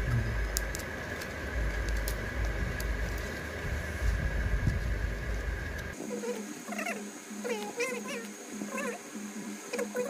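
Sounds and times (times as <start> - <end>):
low handling rumble: 0.0 - 6.0
steady background hum: 0.0 - 10.0.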